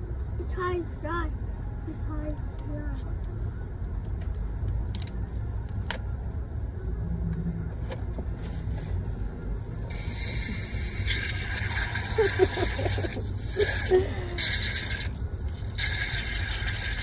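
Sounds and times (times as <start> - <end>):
loud hiss: 9.9 - 11.4.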